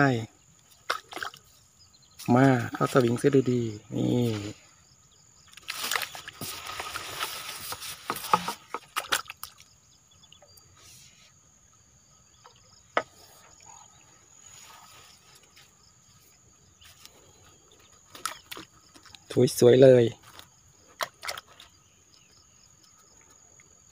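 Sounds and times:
water splashing: 0:00.8 - 0:01.5, 0:05.5 - 0:09.8, 0:21.0 - 0:21.7
fishing net handling: 0:05.5 - 0:09.6, 0:17.8 - 0:19.4, 0:20.2 - 0:21.8.

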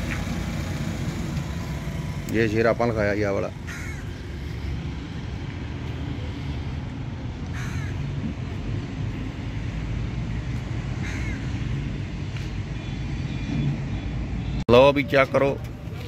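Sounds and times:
crow cawing: 0:03.6 - 0:04.2, 0:07.5 - 0:08.1, 0:11.0 - 0:11.7.

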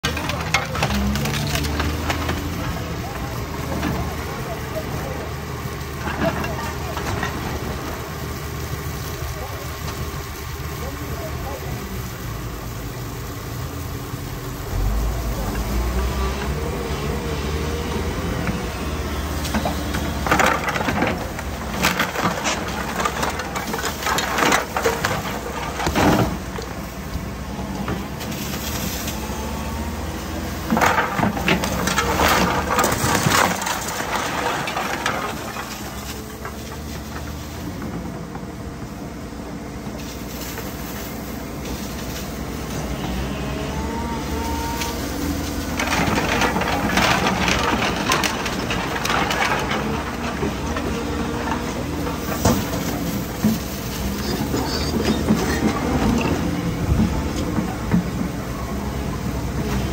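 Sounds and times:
tiles and masonry crumbling: 0:00.0 - 0:05.3, 0:06.0 - 0:07.8, 0:16.6 - 0:26.8, 0:27.8 - 0:38.0, 0:44.0 - 0:59.9
excavator diesel engine running: 0:00.0 - 0:59.9.

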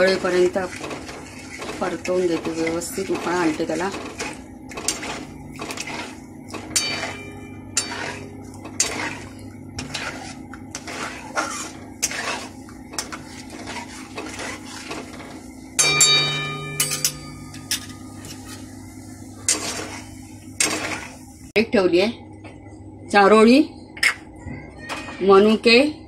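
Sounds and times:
metal spatula scraping a pan: 0:00.0 - 0:18.8, 0:19.4 - 0:21.2
low hum: 0:02.5 - 0:24.0
ringing metal clang: 0:06.7 - 0:08.2, 0:15.8 - 0:18.2.

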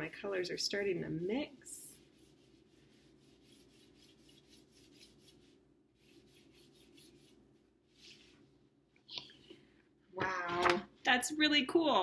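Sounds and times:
paintbrush scrubbing paper: 0:00.0 - 0:08.5.

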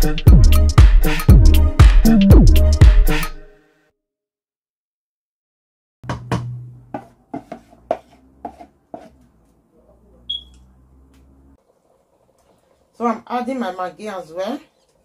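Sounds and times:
wooden spoon knocking on pot: 0:06.0 - 0:09.1.

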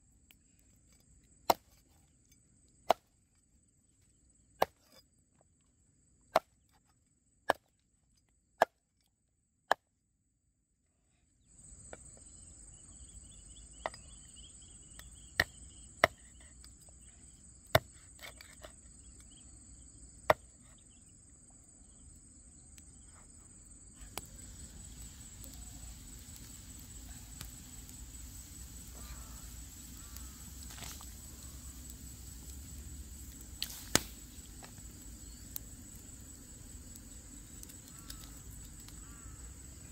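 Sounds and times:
high insect drone: 0:11.4 - 0:39.9
steady hiss: 0:22.9 - 0:39.9.

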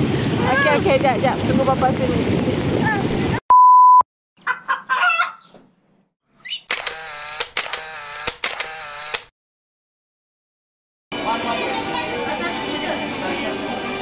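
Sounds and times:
chicken clucking: 0:04.4 - 0:05.6.

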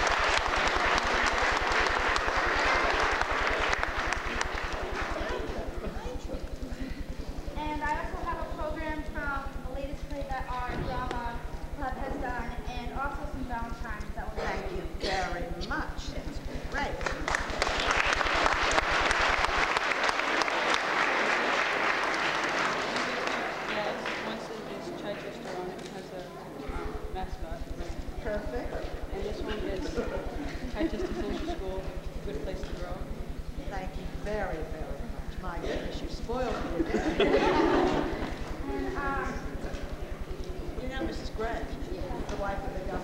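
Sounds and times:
crowd applauding: 0:00.0 - 0:07.4, 0:16.7 - 0:24.9.

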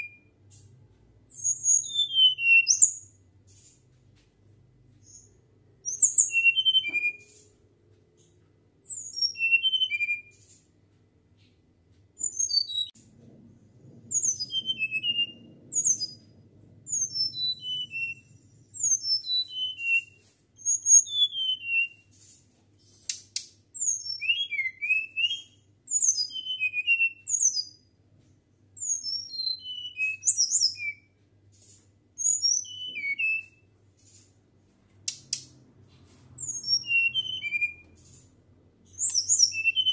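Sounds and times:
flycatcher whistling song: 0:05.0 - 0:07.4, 0:08.9 - 0:10.4, 0:14.1 - 0:16.2, 0:16.9 - 0:22.1, 0:23.8 - 0:27.8, 0:28.8 - 0:31.1, 0:32.2 - 0:33.7, 0:36.4 - 0:38.2, 0:38.9 - 0:39.9.

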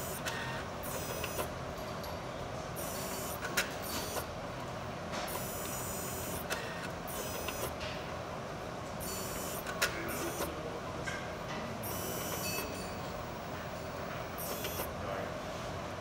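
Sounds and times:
autosampler motors whirring: 0:00.0 - 0:01.5, 0:02.8 - 0:04.3, 0:05.3 - 0:07.8, 0:09.0 - 0:10.6, 0:11.8 - 0:14.9
sharp mechanical clicks: 0:00.0 - 0:01.5, 0:02.8 - 0:04.3, 0:05.3 - 0:07.8, 0:09.0 - 0:10.5, 0:11.8 - 0:14.9
steady hum: 0:00.0 - 0:01.8, 0:02.4 - 0:16.0.

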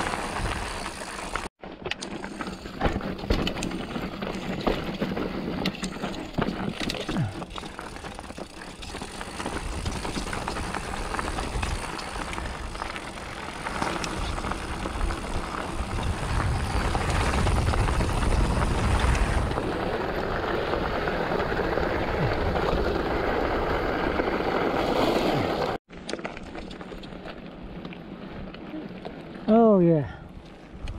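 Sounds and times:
bike clattering over rough ground: 0:00.0 - 0:29.5
bike tyre rumble: 0:00.0 - 0:30.9
wind rushing over microphone: 0:14.2 - 0:19.8.

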